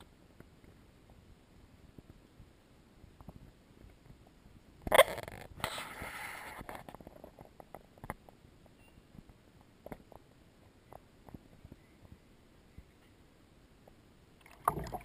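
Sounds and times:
canoe paddle splashing: 14.4s - 15.0s
water dripping: 14.4s - 15.0s.

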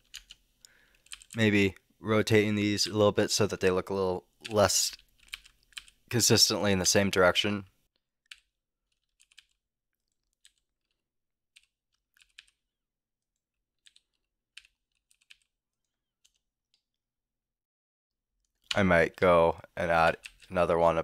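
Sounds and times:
keyboard keys clicking: 0.0s - 0.4s, 1.0s - 1.4s, 8.3s - 12.6s.

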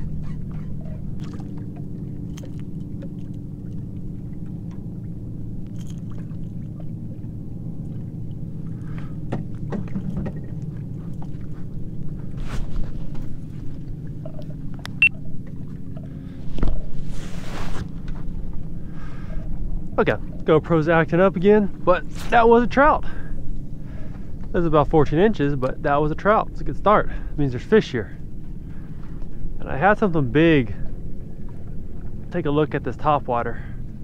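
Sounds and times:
fish splashing: 0.0s - 4.5s
boat motor humming: 0.0s - 34.0s.

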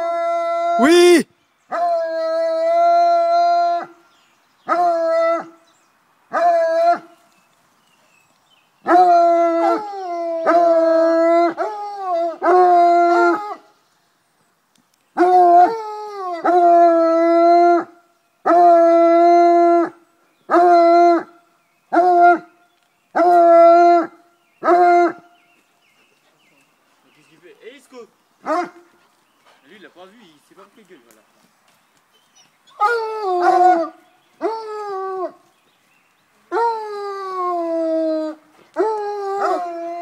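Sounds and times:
hound baying: 28.4s - 29.6s, 32.7s - 35.4s, 36.5s - 40.0s.

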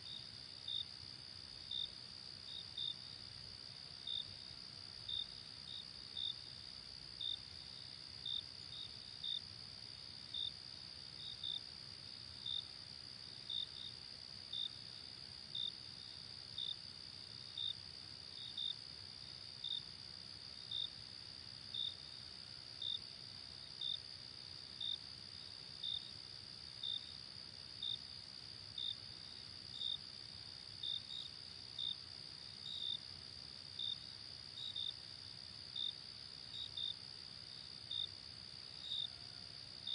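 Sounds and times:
cricket chirping: 0.0s - 39.9s.

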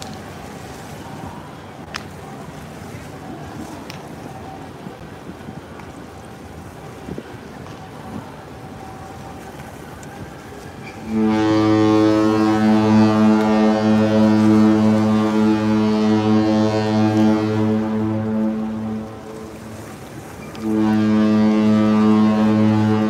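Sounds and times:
waves washing against rocks: 0.0s - 23.0s
wind on microphone: 0.2s - 23.0s
ship's horn deep blast: 11.0s - 23.0s.

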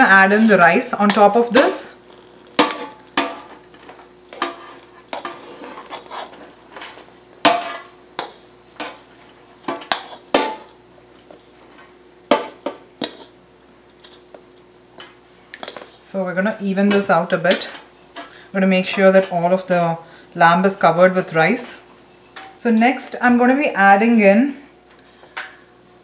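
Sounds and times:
spatula knocking and scraping pot: 2.6s - 9.0s.

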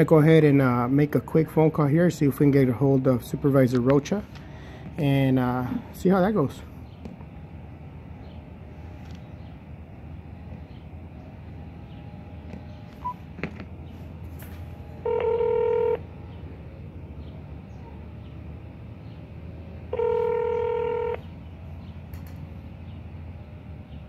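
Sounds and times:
telephone ringback tone: 15.0s - 16.0s, 19.9s - 21.2s.

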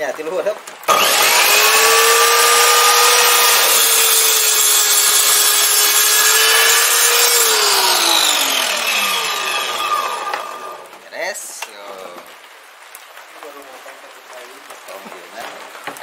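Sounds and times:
miter saw cutting wood: 0.9s - 11.0s.

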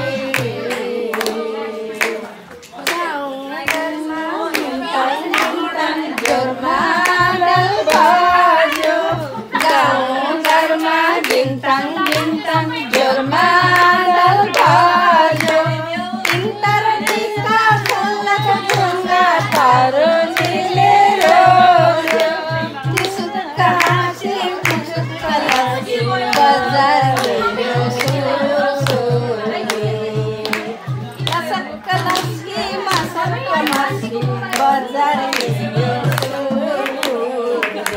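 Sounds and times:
women singing folk song: 0.0s - 37.9s
hands clapping: 0.3s - 37.9s
low steady beat: 6.0s - 36.8s.

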